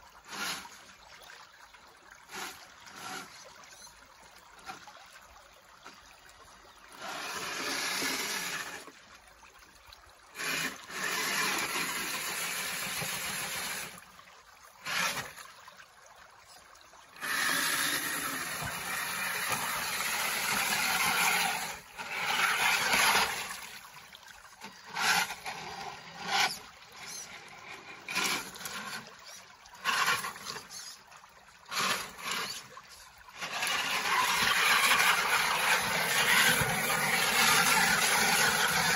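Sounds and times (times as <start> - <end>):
tyres churning through water: 0.0 - 9.4, 10.1 - 38.9
creek trickling: 0.0 - 38.9.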